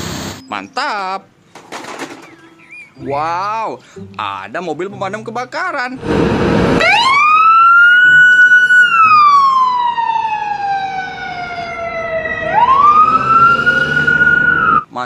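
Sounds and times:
siren wailing: 0:06.0 - 0:14.9.

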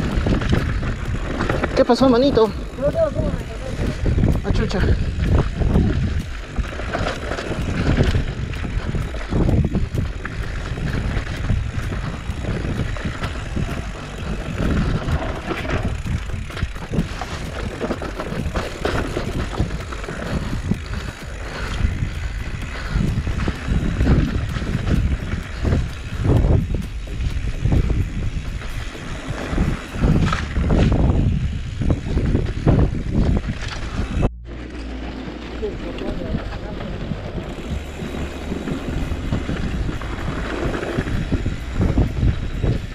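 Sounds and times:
wind rushing on microphone: 0:00.0 - 0:34.5, 0:35.5 - 0:42.9
bike rattling and knocking: 0:00.0 - 0:42.9
tyres rolling over dirt and stones: 0:05.8 - 0:21.9.

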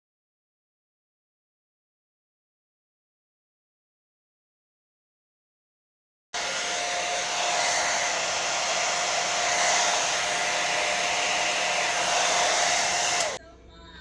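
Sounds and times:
hair dryer running: 0:06.4 - 0:13.4.

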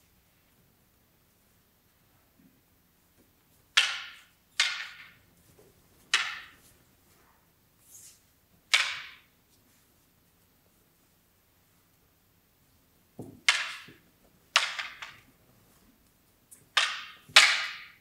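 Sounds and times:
wooden sticks clacking: 0:03.7 - 0:05.2, 0:06.0 - 0:06.7, 0:08.7 - 0:09.3, 0:13.2 - 0:15.3, 0:16.5 - 0:18.0.

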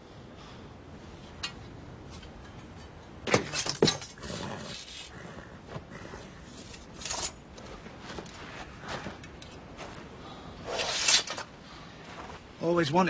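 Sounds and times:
scuffling in sand: 0:07.6 - 0:13.0.

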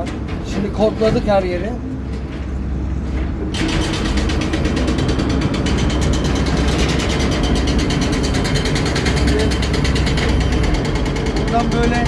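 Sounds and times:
diesel engine rumble: 0:00.0 - 0:12.0
fast ticking clatter: 0:03.6 - 0:12.0.

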